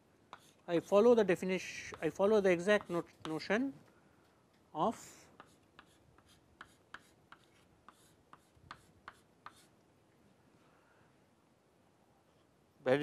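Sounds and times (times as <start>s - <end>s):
chalk scratching on chalkboard: 0.3s - 3.5s, 5.4s - 9.7s.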